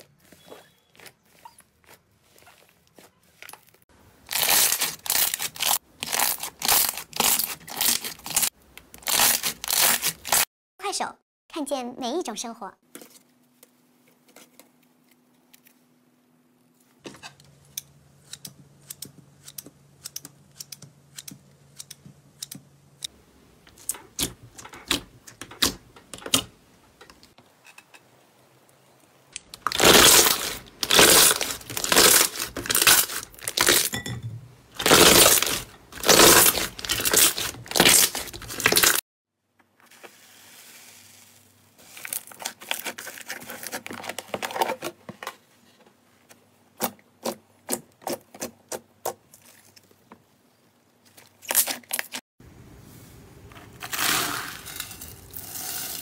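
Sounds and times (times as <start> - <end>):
loud crackling bursts: 29.4 - 33.8
foam slime crackling: 29.6 - 33.8.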